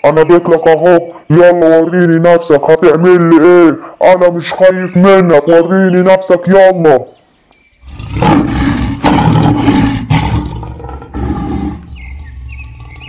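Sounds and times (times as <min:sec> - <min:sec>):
big cats roaring: 0:07.8 - 0:13.0.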